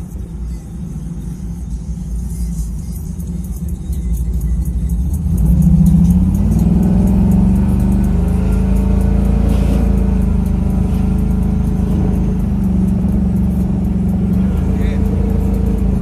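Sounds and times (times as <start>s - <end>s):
vehicle engine running: 0.0s - 16.0s.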